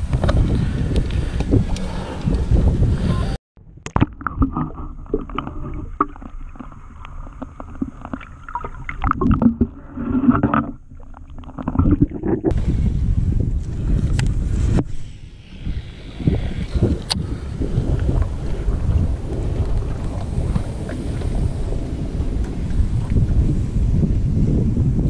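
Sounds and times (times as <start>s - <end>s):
wind buffeting microphone: 0.0s - 3.4s, 11.7s - 25.0s
knocks and clatter in boat: 17.8s - 24.2s.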